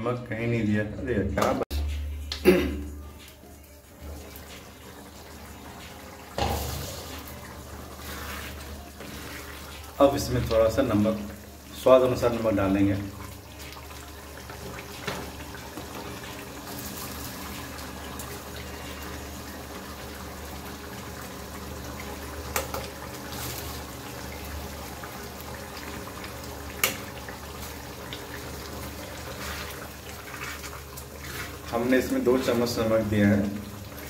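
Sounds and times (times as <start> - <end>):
gravy bubbling in a pan: 4.0 - 12.3, 13.0 - 34.0.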